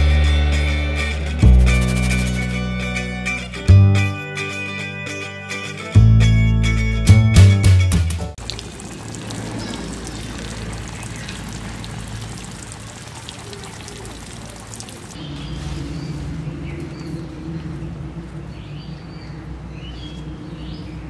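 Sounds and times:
water spraying from a hose: 8.4s - 15.2s
birds chirping: 8.5s - 21.0s.

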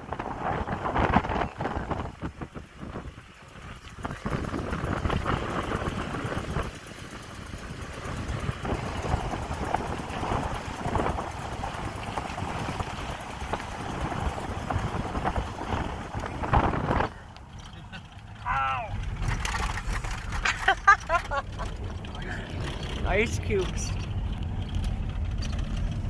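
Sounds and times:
wind on microphone: 0.0s - 17.3s
truck engine and road noise: 0.0s - 26.0s.

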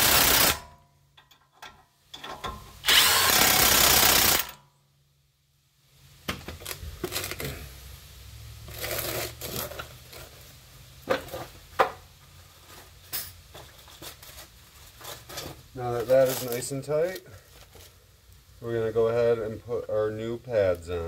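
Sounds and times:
cordless power tool running: 2.8s - 4.5s.

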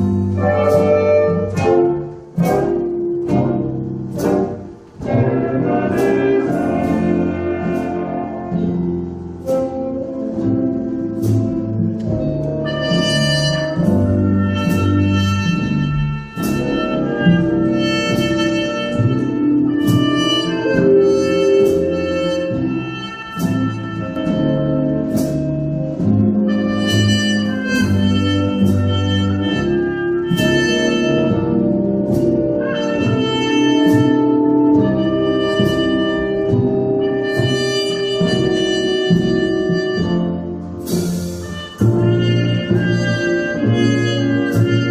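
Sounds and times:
big band brass chords: 0.0s - 44.9s
low bass line: 0.0s - 44.9s
muted trumpet: 12.6s - 24.6s, 26.5s - 31.8s, 32.6s - 40.6s, 41.4s - 44.9s.

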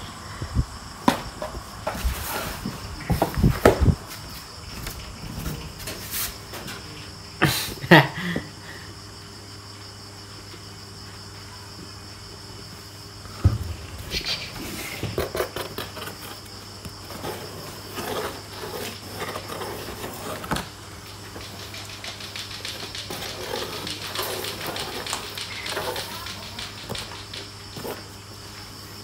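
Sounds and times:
sharp thump: 13.3s - 15.4s
fingers scratching on cardboard box: 17.1s - 20.6s.

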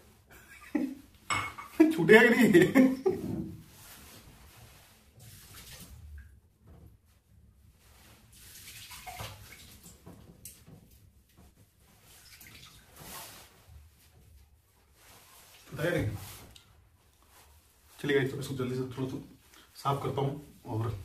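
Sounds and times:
tap water splashing into sink: 8.6s - 10.8s.

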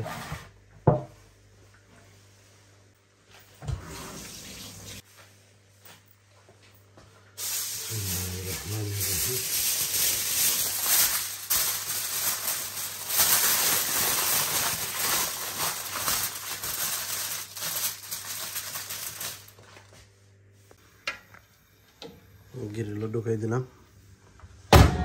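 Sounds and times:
aluminium foil crinkling: 7.4s - 20.0s.

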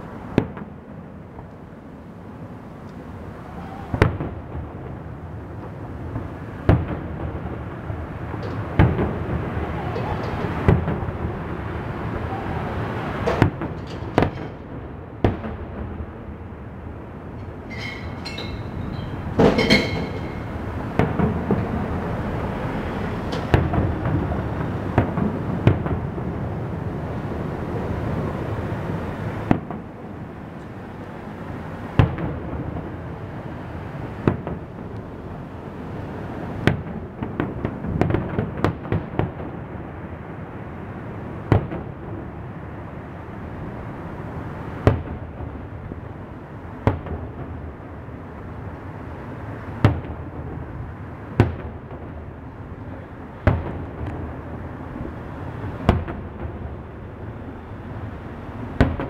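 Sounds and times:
fireworks bangs: 0.2s - 1.5s, 3.0s - 30.3s, 31.8s - 40.2s, 41.4s - 42.4s, 44.8s - 46.1s, 49.8s - 57.5s, 58.6s - 59.0s
fireworks crackling pops: 0.3s - 0.8s, 5.6s - 12.3s, 13.0s - 16.0s, 23.2s - 26.1s, 36.6s - 39.6s, 41.5s - 42.0s, 44.8s - 45.6s, 49.6s - 50.3s, 51.3s - 52.2s, 52.9s - 56.8s, 58.8s - 59.0s.

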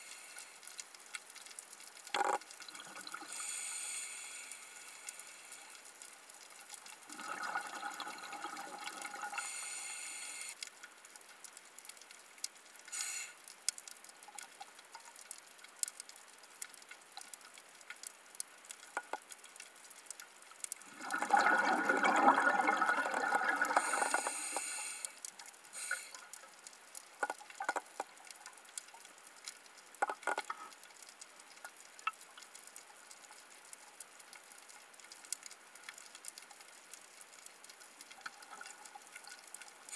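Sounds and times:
faint clicks and crackles: 0.0s - 39.9s
underwater breath bubbling: 3.1s - 5.7s, 7.1s - 10.6s, 20.9s - 25.2s.

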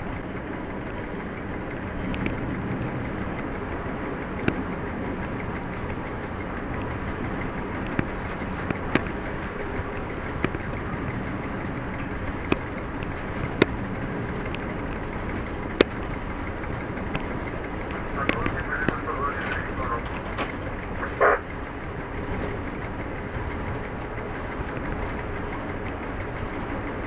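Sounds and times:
locomotive engine and wheels: 0.0s - 27.0s
sharp clicks: 1.7s - 2.4s, 4.2s - 21.6s.

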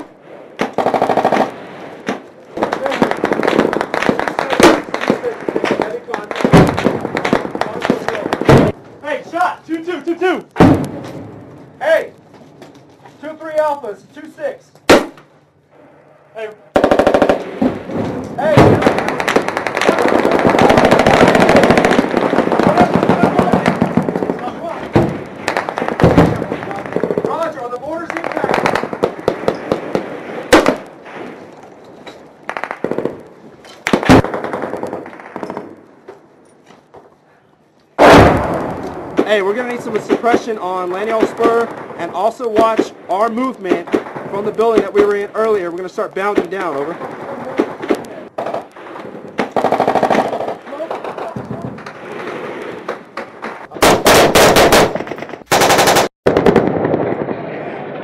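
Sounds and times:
automatic gunfire bursts: 0.6s - 1.6s, 16.8s - 17.6s, 18.7s - 24.4s, 49.4s - 51.2s, 53.8s - 56.6s
automatic gunfire: 0.6s - 8.8s, 16.7s - 17.8s, 18.4s - 27.5s, 33.9s - 35.8s, 49.4s - 51.3s, 52.0s - 57.3s
loud echoing gunshot cracks: 10.6s - 11.2s, 14.9s - 15.3s, 28.1s - 31.4s, 33.9s - 35.8s, 38.0s - 39.3s.

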